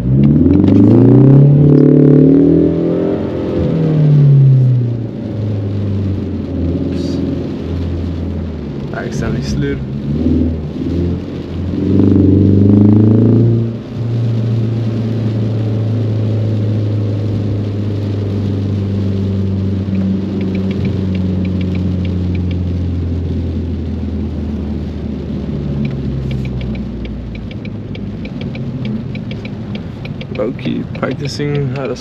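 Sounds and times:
car engine revving: 0.0 - 32.0
light rapid ticking: 19.9 - 22.8, 25.8 - 32.0.

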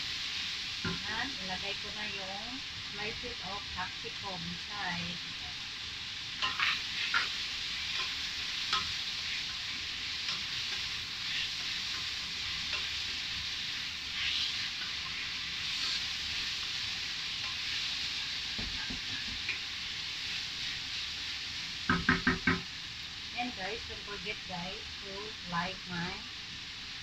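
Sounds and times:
meat sizzling in a frying pan: 0.0 - 27.0
wooden spatula scraping a pan: 14.1 - 16.1.

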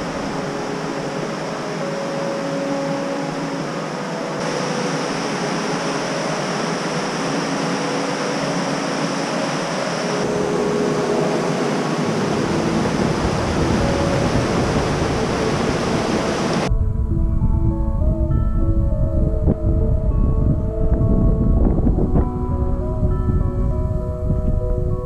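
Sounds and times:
river rushing over rocks: 0.0 - 16.7.

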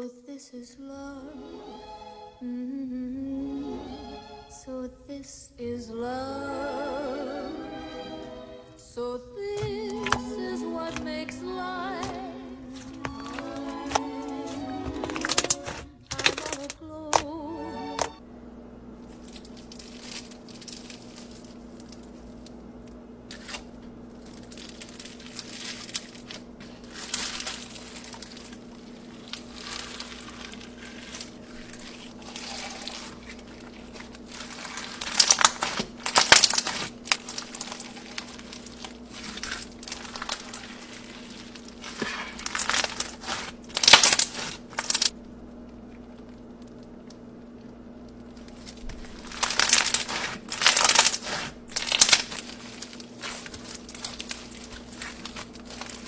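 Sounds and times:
slime crackling and squishing: 9.6 - 17.2, 19.0 - 45.2, 48.0 - 56.0.

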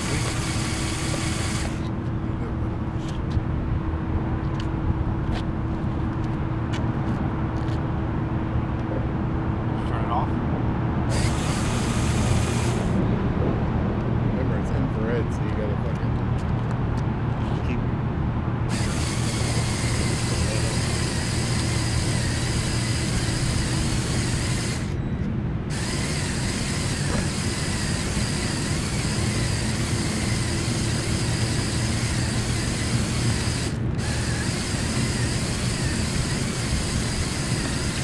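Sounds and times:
toy motors whining: 0.0 - 1.9, 11.1 - 13.0, 18.7 - 25.0, 25.7 - 38.0.

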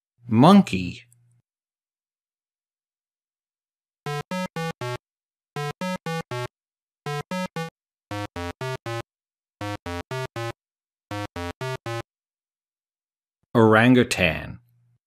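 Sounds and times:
eight-bit synthesizer beeps: 4.1 - 5.0, 5.6 - 6.5, 7.1 - 9.0, 9.6 - 12.0.

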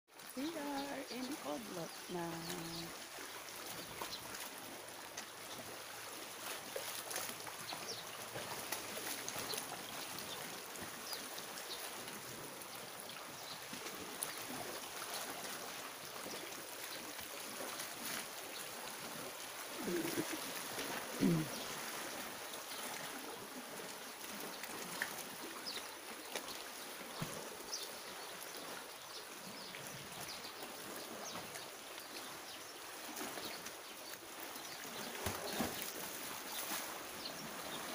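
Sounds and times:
sea water lapping on rocks: 0.1 - 32.2, 32.8 - 37.9.

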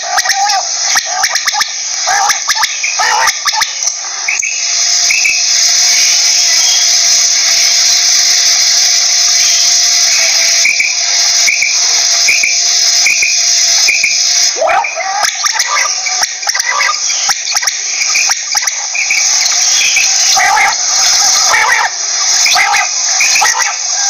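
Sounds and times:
quail calling: 0.0 - 4.5, 10.3 - 24.0
high-pitched hiss: 0.0 - 24.0.

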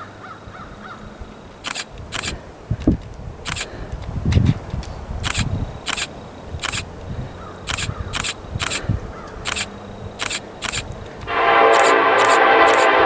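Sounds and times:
diesel train rumble: 0.0 - 13.0
short sharp clicks: 1.6 - 2.4, 3.4 - 3.8, 4.8 - 6.9, 7.7 - 13.0.

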